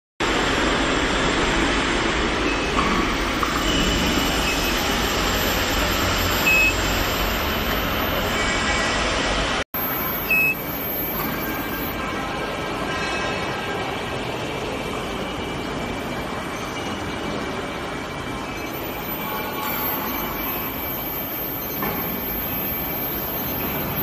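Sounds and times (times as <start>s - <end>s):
steady machine noise: 0.3s - 12.1s, 18.4s - 24.0s
short high beeps: 3.7s - 8.3s, 9.8s - 12.0s, 18.8s - 24.0s.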